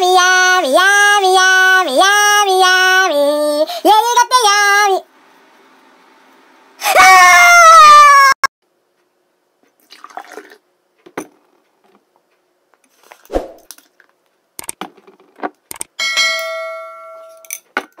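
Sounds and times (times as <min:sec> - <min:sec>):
glass ringing: 0:16.0 - 0:17.6.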